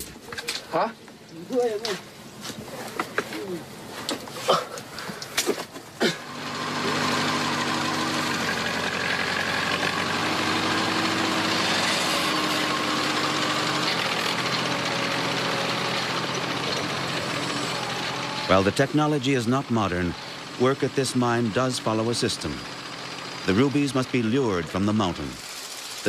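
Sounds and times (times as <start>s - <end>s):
motor engine running: 5.9s - 26.0s.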